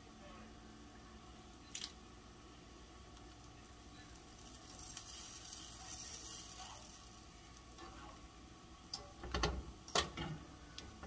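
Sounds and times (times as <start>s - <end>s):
oil sizzling in a skillet: 3.1s - 11.0s
sharp clicks and knocks: 8.9s - 10.9s.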